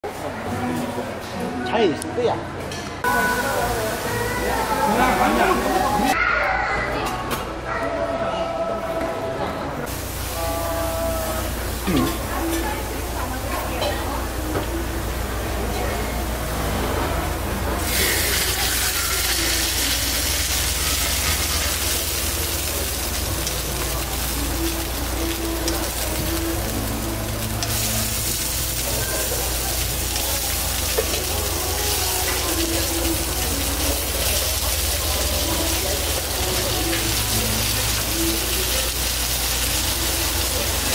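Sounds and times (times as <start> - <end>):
chicken sizzling on griddle: 9.9 - 40.9.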